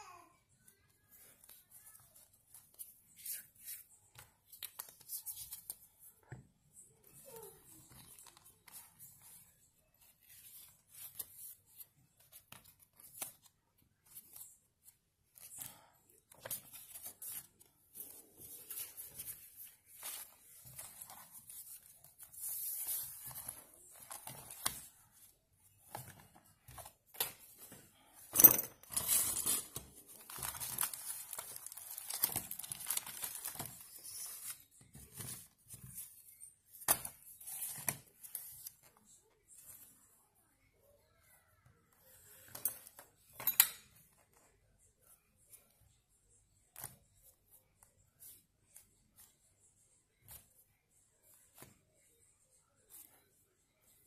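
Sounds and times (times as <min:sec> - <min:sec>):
paper pages rustling: 0:01.4 - 0:06.2, 0:07.3 - 0:27.8, 0:28.9 - 0:39.9.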